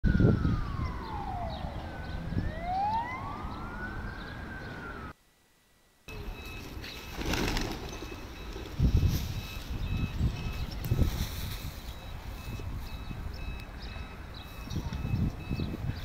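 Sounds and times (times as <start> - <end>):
wind noise on microphone: 0.0 - 4.1, 8.7 - 16.0
emergency vehicle siren wailing: 0.0 - 5.2
pigeons' wingbeats: 6.2 - 11.9.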